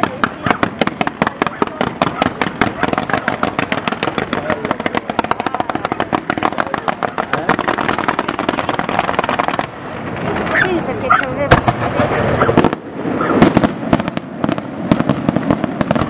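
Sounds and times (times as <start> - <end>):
fireworks sharp shots: 0.0 - 16.0.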